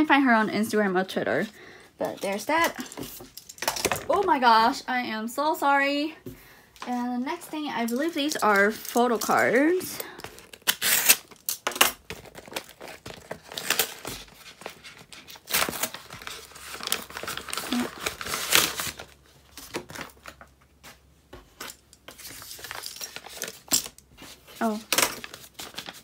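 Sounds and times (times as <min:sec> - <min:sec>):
packaging crinkling: 0:07.8 - 0:20.5, 0:22.1 - 0:26.0.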